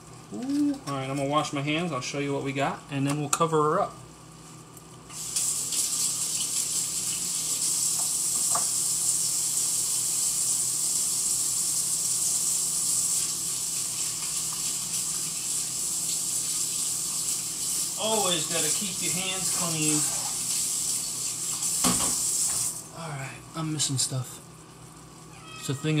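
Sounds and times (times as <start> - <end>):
faucet running: 5.1 - 22.9.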